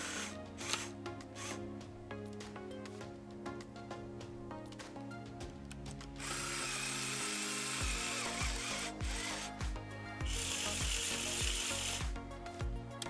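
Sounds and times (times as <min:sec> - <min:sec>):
small electric motor whirring: 0:00.0 - 0:01.6, 0:06.2 - 0:12.1
background music with steady beat: 0:00.0 - 0:13.0.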